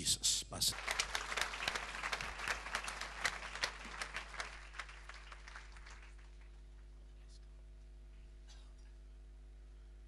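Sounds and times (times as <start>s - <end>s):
congregation applauding: 0.7s - 6.9s.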